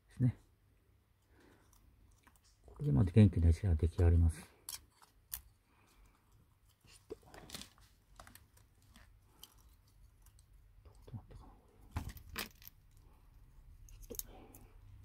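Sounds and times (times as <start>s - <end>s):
small parts clicking and tapping: 3.9s - 15.0s.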